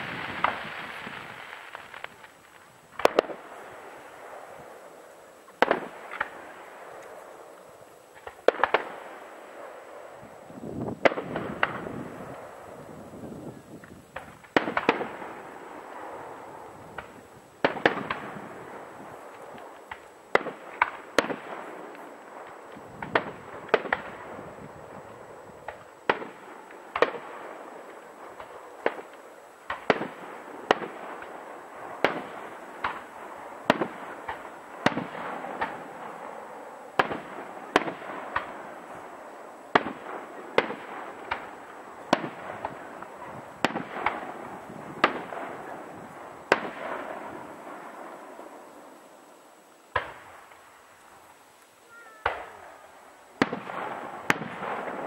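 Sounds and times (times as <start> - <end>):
firework shells bursting: 0.0 - 4.8
continuous noisy haze: 0.0 - 55.0.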